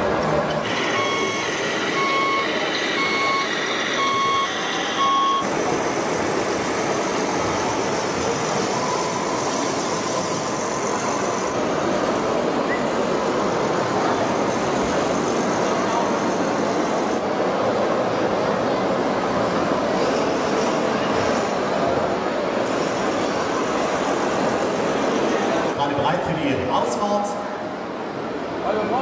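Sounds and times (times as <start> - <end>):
steady background noise: 0.0 - 29.0
reversing alarm beeping: 0.6 - 5.5, 8.5 - 11.6.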